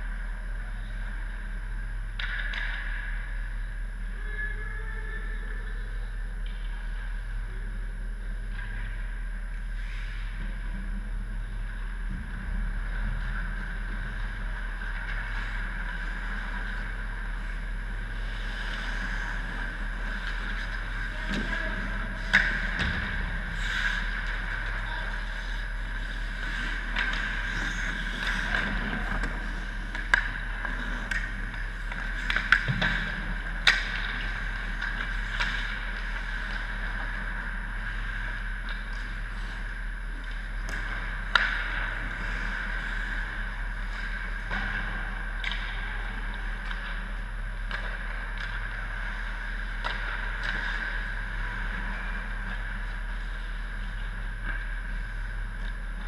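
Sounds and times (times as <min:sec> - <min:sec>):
background hum: 0:00.0 - 0:56.0
puck cracks: 0:26.6 - 0:37.2.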